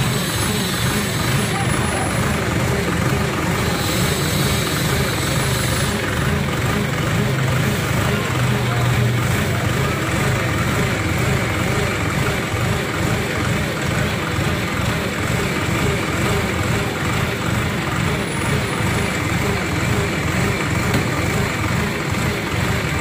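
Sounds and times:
diesel engine running steadily: 0.0s - 23.0s.

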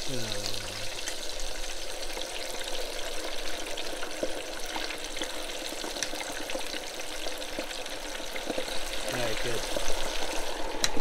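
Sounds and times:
oil bubbling and sizzling: 0.0s - 11.0s
small pops and crackles: 4.0s - 6.8s.

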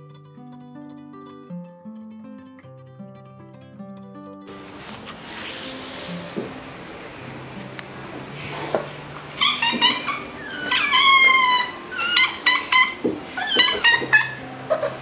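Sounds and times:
cat meowing: 9.3s - 15.0s.

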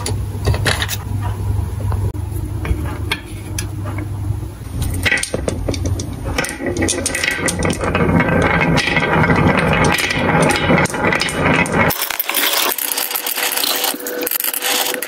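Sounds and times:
marbles rolling on wood: 4.9s - 15.0s.

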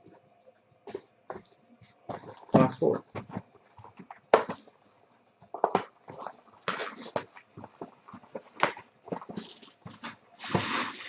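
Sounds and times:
plastic wrap crinkling: 5.5s - 11.0s.

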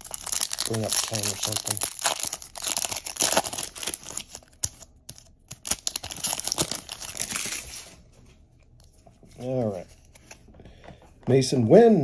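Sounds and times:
wrapper crinkling: 0.0s - 7.9s.

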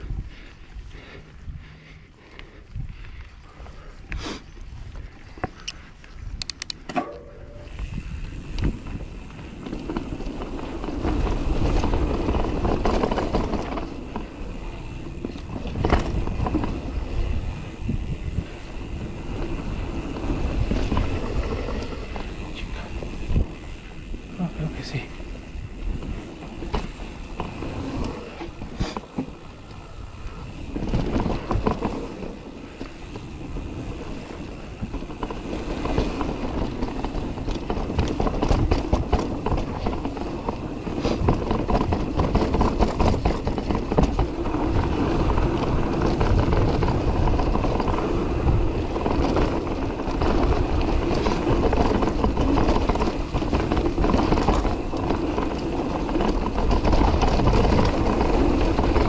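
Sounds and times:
bike tyres rolling over dirt: 0.0s - 59.0s
bike chain and frame rattling: 5.0s - 59.0s.

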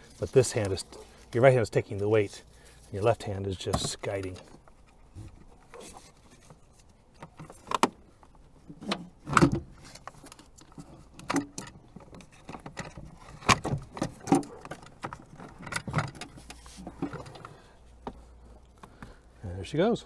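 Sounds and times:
battery knocking and scraping: 3.7s - 19.2s.

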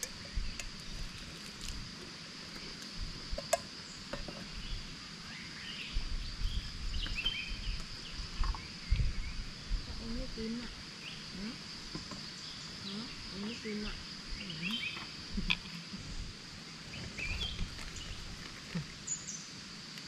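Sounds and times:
insects droning: 0.0s - 20.0s
bird chirps: 3.8s - 9.4s, 12.2s - 15.2s.

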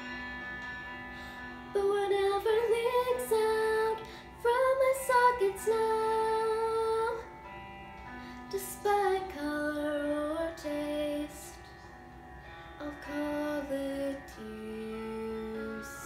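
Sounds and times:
instrumental accompaniment: 0.0s - 16.0s
woman singing: 1.7s - 7.3s, 8.5s - 11.8s, 12.8s - 16.0s.

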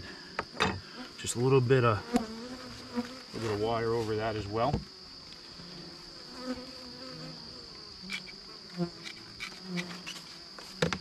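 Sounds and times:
high-pitched insect chorus: 0.0s - 11.0s
honey bees buzzing: 0.0s - 11.0s.

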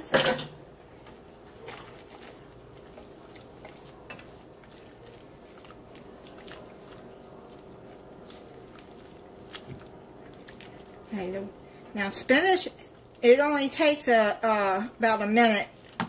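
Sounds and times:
wet squelching of sauce: 1.1s - 11.9s.

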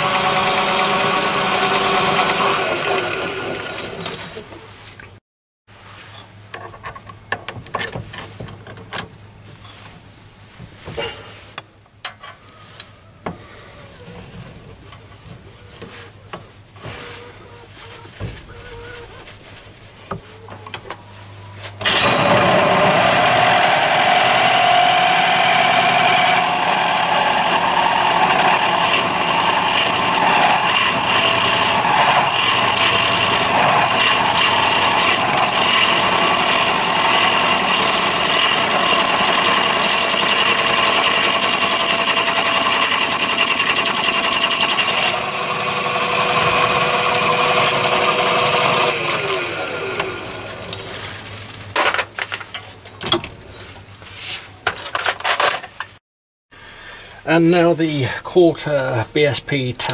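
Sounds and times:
lathe motor whine: 0.0s - 4.2s, 21.8s - 50.6s
drill bit boring into metal: 21.8s - 50.5s.

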